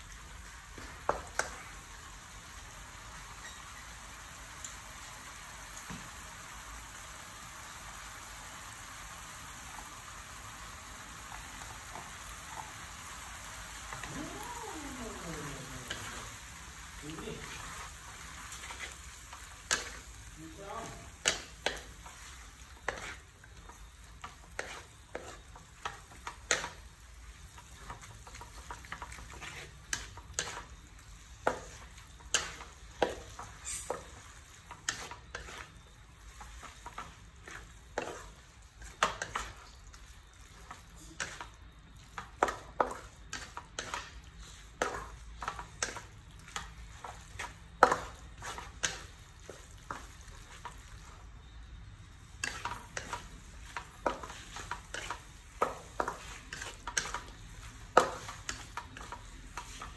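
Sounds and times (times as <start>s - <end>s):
noodles sizzling: 0.0s - 59.9s
wooden spatula scraping metal wok: 13.9s - 59.9s.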